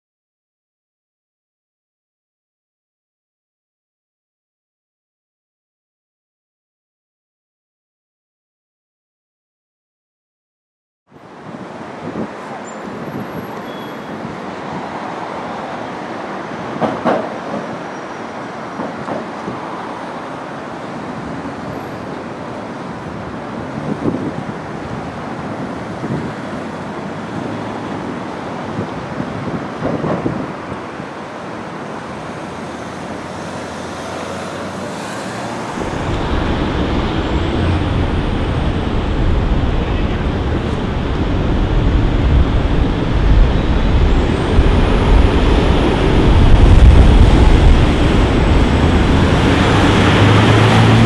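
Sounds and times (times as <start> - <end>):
city street traffic: 11.1 - 51.0
wind rumble on microphone: 11.4 - 15.0, 22.9 - 31.2, 35.7 - 51.0.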